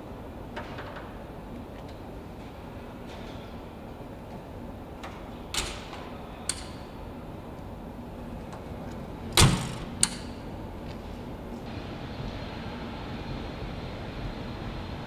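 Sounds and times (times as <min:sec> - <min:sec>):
factory hum: 0:00.0 - 0:15.0.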